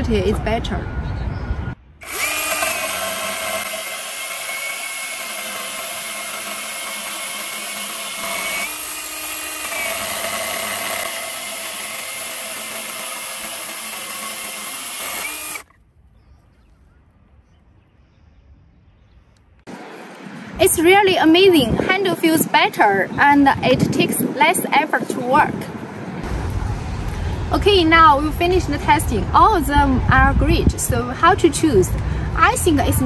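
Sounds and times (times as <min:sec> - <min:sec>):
electric chainsaw cutting wood: 0:02.0 - 0:15.7.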